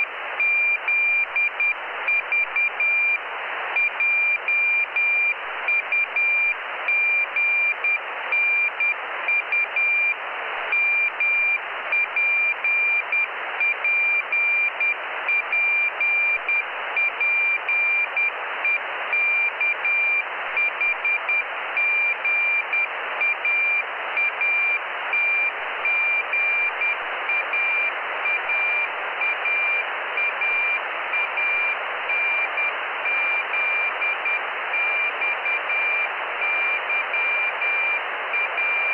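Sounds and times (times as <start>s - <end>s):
radio receiver hiss: 0.0s - 38.9s
morse code beacon tone: 10.8s - 38.9s.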